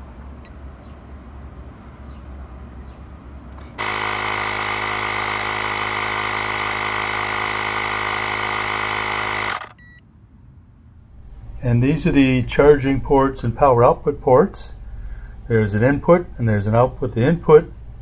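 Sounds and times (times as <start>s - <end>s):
electric air compressor running: 3.8s - 9.8s.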